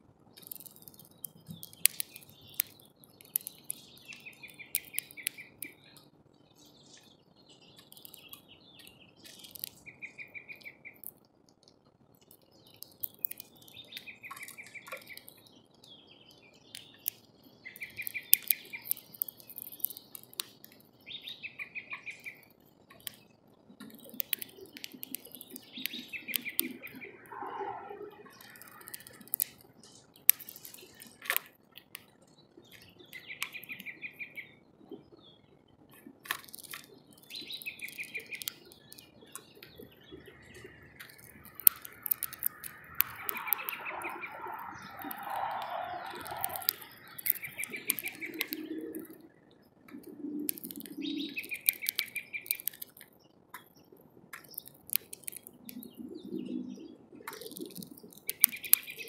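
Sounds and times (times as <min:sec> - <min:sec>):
songbirds chirping: 0:00.0 - 0:59.0
sharp clicks and taps: 0:00.4 - 0:06.1, 0:17.8 - 0:20.9, 0:22.2 - 0:23.2, 0:23.8 - 0:27.4, 0:28.3 - 0:32.1, 0:36.0 - 0:49.2, 0:49.9 - 0:53.8, 0:54.4 - 0:56.0, 0:57.3 - 0:59.0.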